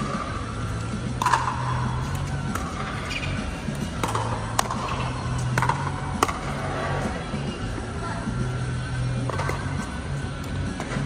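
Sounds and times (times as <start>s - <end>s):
ball striking paddles: 1.1s - 6.6s.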